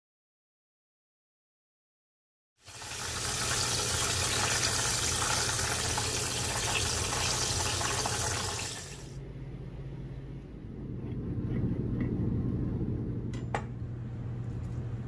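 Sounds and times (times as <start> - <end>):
water running from a tap: 2.6 - 9.2
low steady hum: 8.9 - 15.0.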